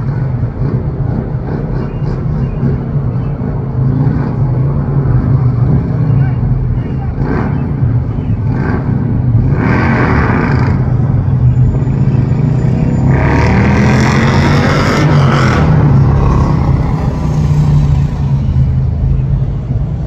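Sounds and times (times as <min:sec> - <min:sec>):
city street traffic: 0:00.0 - 0:20.0.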